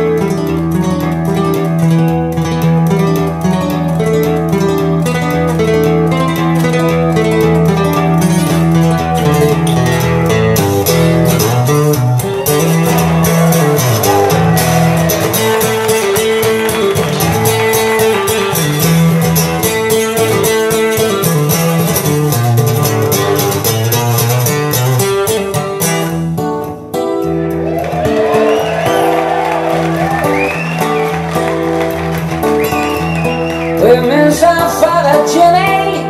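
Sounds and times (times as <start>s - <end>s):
song with guitar on stereo: 0.0s - 36.0s.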